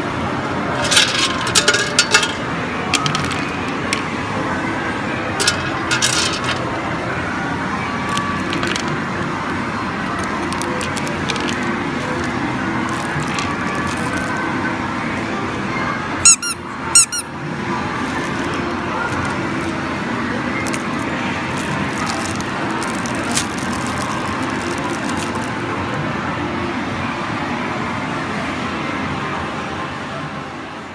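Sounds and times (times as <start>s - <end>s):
arcade background din: 0.0s - 30.9s
squeeze toy squeaks: 16.2s - 17.3s.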